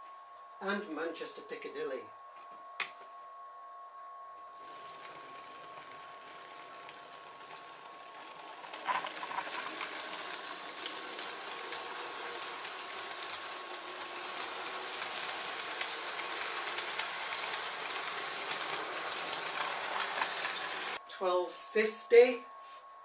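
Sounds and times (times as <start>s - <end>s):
model train rumbling on track: 4.7s - 21.0s.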